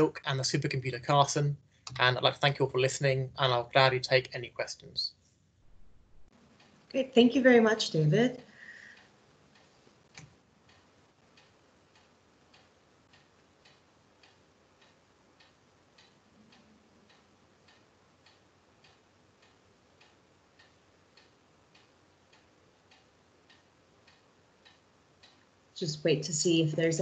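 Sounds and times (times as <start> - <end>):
faint regular ticking: 0.0 - 27.0
click: 9.0 - 10.8, 11.4 - 25.5.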